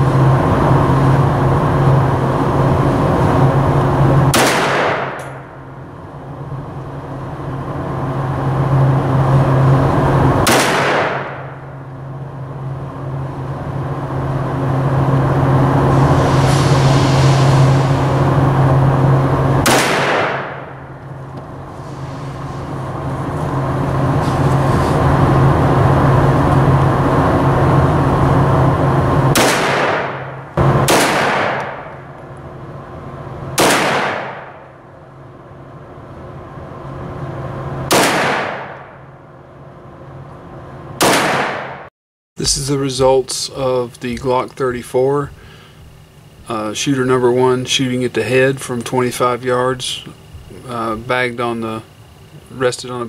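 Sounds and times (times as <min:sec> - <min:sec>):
steady low hum: 0:00.0 - 0:53.0
pistol shots echoing: 0:04.3 - 0:05.2, 0:10.4 - 0:11.4, 0:19.7 - 0:20.6, 0:29.4 - 0:31.9, 0:33.6 - 0:34.6, 0:37.9 - 0:38.8, 0:41.0 - 0:41.8.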